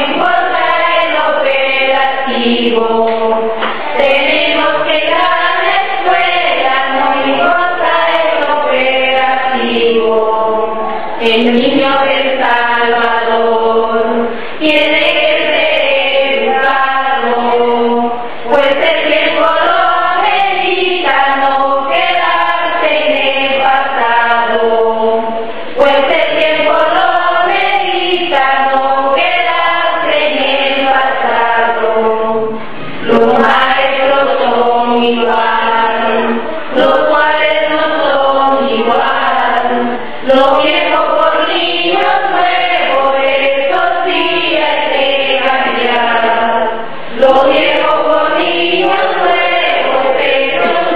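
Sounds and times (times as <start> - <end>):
choir singing: 0.0 - 50.9
singers breathing: 14.2 - 14.6.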